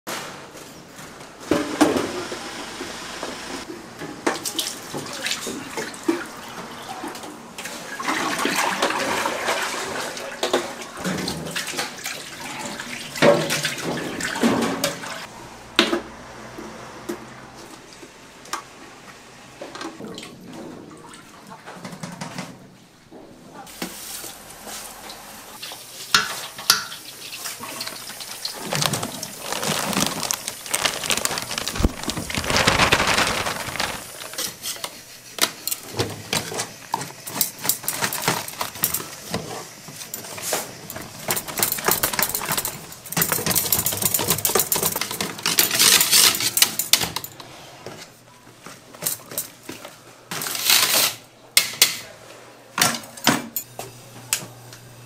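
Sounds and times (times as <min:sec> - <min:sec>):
utensils and dishes clattering: 0:04.0 - 0:15.3, 0:25.6 - 0:48.0, 0:48.6 - 0:52.1.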